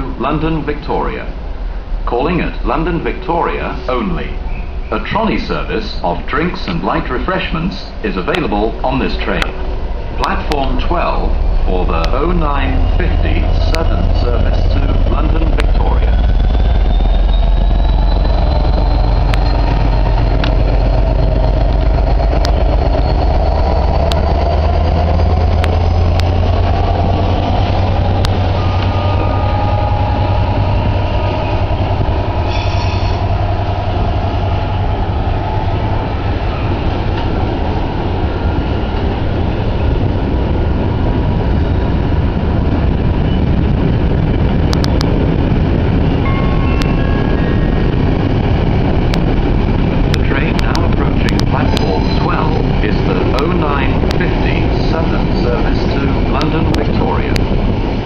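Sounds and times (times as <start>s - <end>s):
diesel locomotive engine: 0.0s - 58.0s
train wagons rumbling by: 0.0s - 58.0s
faint wheel squeals: 16.3s - 21.4s.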